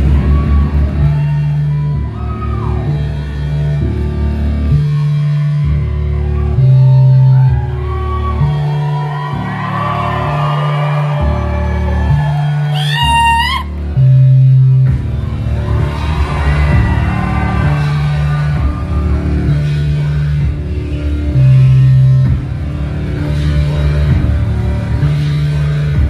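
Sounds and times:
heavy bass line: 0:00.0 - 0:26.0.

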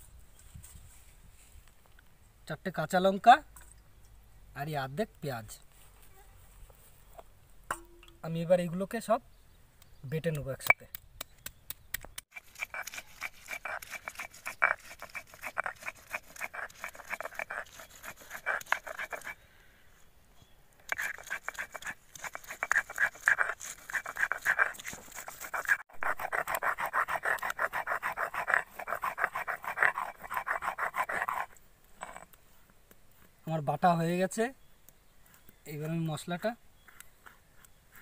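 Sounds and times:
stone grinder rasping on slab: 0:12.3 - 0:19.4, 0:20.9 - 0:32.2.

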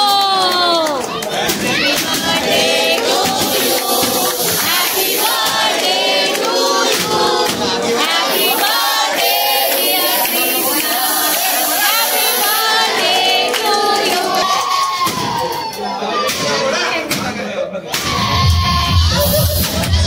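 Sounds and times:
crowd singing together: 0:00.0 - 0:20.0
spray cans hissing: 0:01.5 - 0:14.8, 0:19.2 - 0:20.0.

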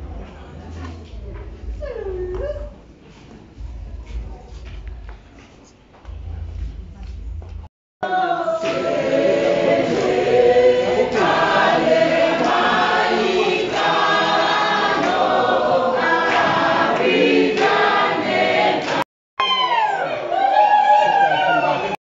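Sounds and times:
choir singing: 0:08.0 - 0:19.0.

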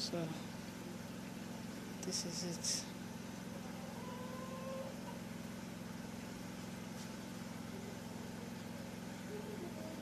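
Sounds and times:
engine humming: 0:00.0 - 0:10.0.

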